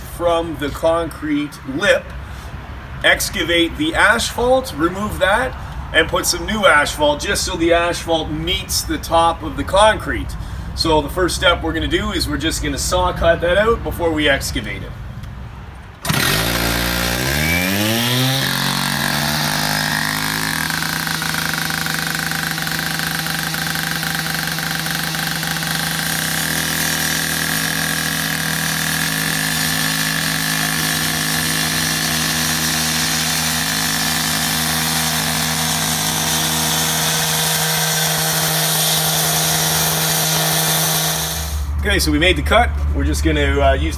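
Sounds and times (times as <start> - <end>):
cut-off saw cutting asphalt: 16.0 - 41.8.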